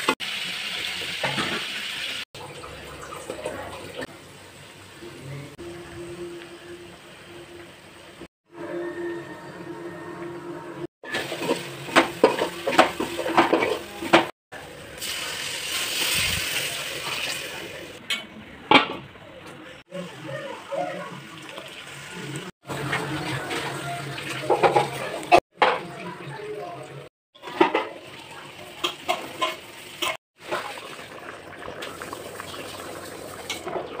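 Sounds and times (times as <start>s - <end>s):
water poured into hot pot hissing: 14.7s - 18.0s, 29.8s - 34.0s
gravy simmering and bubbling: 27.4s - 34.0s.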